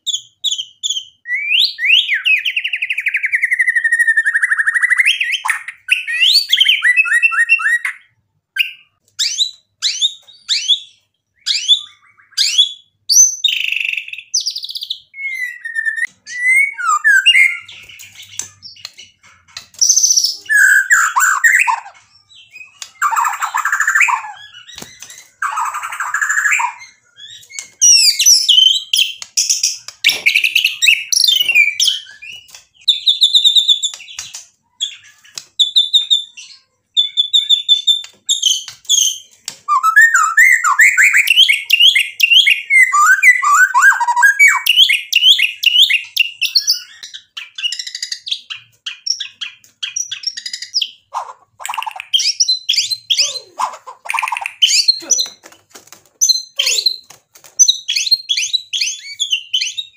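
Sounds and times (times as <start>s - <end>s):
songbird singing whistles and trills: 0.0s - 55.1s, 57.6s - 59.9s.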